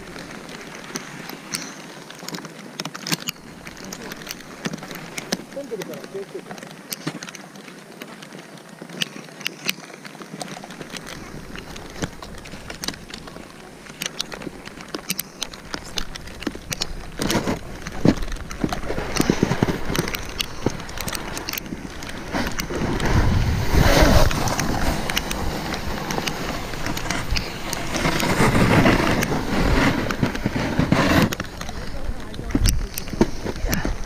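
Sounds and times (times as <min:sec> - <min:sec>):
snowboard scraping over snow: 0:00.0 - 0:34.0
wind buffeting microphone: 0:10.7 - 0:34.0.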